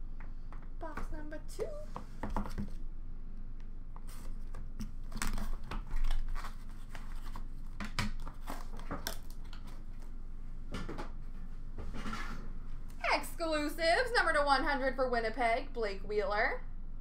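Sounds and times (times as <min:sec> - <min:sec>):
cardboard rustling: 0:04.1 - 0:10.2
wrapping crinkling: 0:05.0 - 0:10.2.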